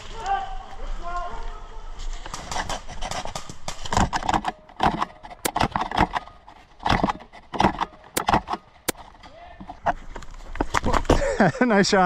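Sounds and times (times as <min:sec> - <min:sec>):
airsoft gun clicks and rattles: 0:02.3 - 0:10.9.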